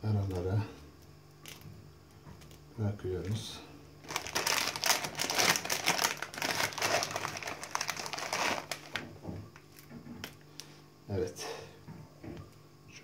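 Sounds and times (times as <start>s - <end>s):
plastic packet crinkling: 4.0s - 9.8s.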